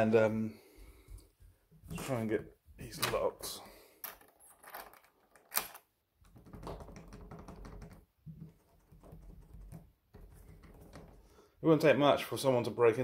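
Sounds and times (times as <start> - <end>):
door lock clicking and rattling: 4.1 - 8.0.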